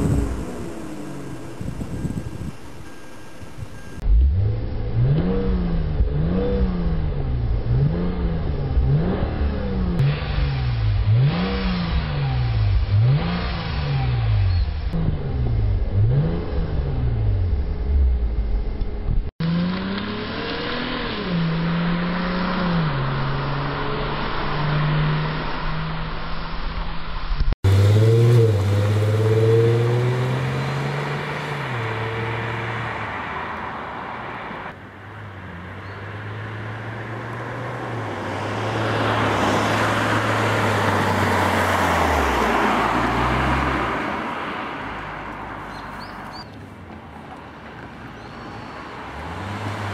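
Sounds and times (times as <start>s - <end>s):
car engine revving: 0.0s - 45.9s, 49.0s - 49.9s
road noise: 0.0s - 49.9s
car accelerating and driving past: 27.6s - 46.4s, 48.4s - 49.9s.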